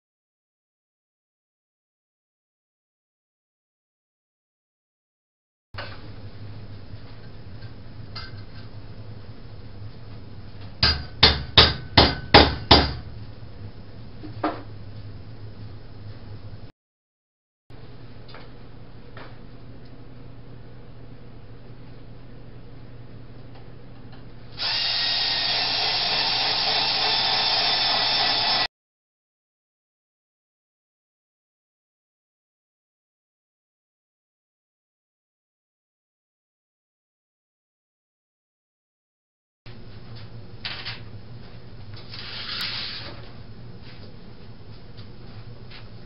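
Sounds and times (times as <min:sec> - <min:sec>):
power drill running: 0:24.6 - 0:28.7.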